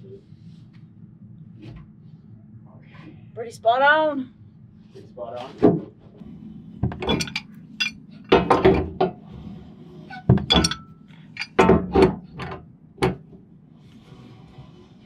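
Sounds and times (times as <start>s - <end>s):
metallic ring: 7.0s - 8.0s, 10.1s - 11.8s
metal pipe knocking against wood: 10.3s - 12.2s.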